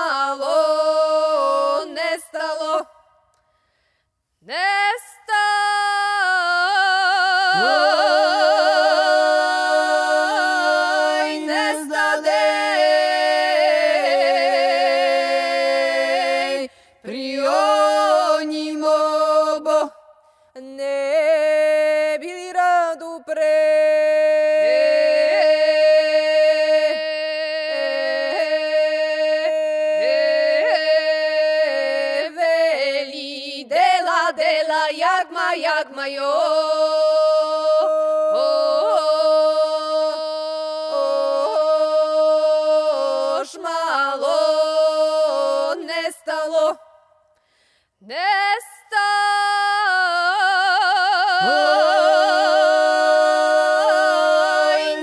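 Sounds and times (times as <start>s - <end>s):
men and women singing a cappella: 0.0s - 3.1s, 4.4s - 47.0s, 48.0s - 55.0s.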